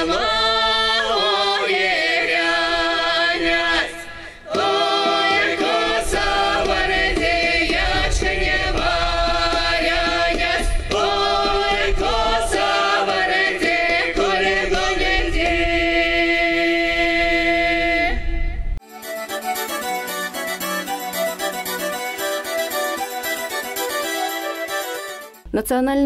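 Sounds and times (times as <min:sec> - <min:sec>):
choir singing in harmony: 0:00.0 - 0:18.6.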